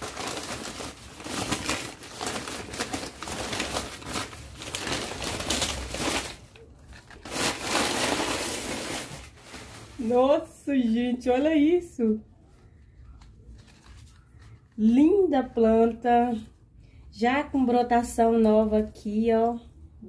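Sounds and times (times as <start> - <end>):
newspaper rustling and crinkling: 0.0 - 10.5, 12.9 - 14.8.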